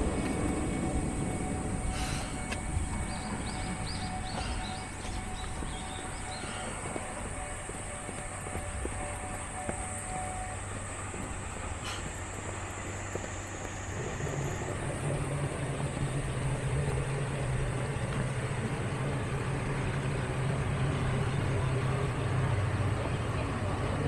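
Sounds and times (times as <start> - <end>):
diesel railcar engine hum: 0.0 - 24.0.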